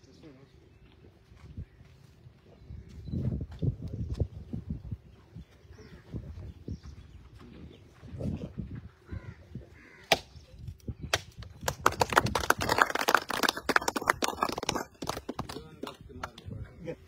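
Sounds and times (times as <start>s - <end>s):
sharp cracks and claps: 10.0s - 10.3s, 11.0s - 16.5s.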